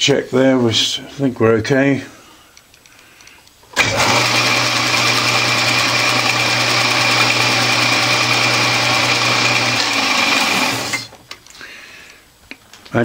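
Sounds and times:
lathe motor hum: 0:03.8 - 0:11.1.

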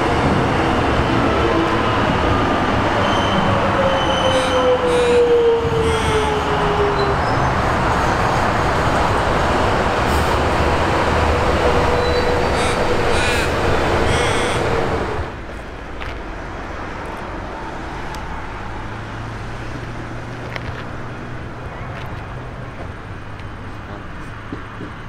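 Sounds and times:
train wheel and rail noise: 0:00.0 - 0:25.0
brief wheel squeals: 0:03.0 - 0:04.6, 0:11.8 - 0:13.5
train motor whine: 0:10.0 - 0:15.3.

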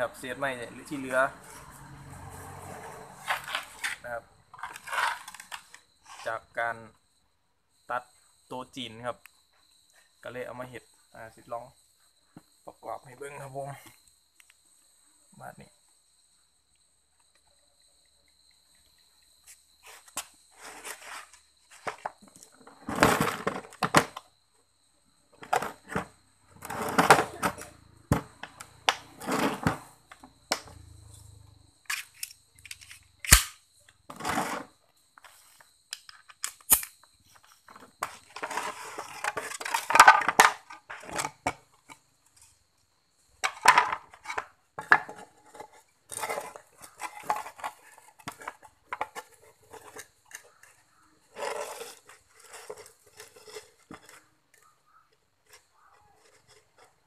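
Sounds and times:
plywood scraping and clattering on concrete: 0:00.0 - 0:06.5, 0:18.4 - 0:24.4, 0:25.3 - 0:31.2, 0:31.8 - 0:57.0.

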